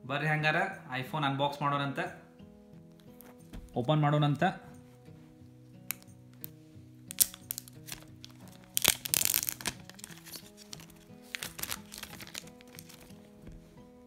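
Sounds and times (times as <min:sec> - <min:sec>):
soft background music: 0:00.0 - 0:14.0
seal strips crinkling and tearing: 0:05.9 - 0:06.1, 0:07.1 - 0:13.3.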